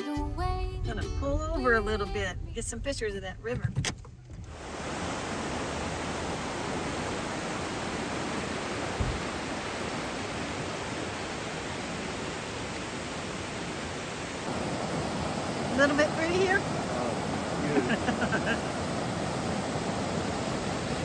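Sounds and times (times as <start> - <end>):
river rushing over rapids: 4.5 - 21.0.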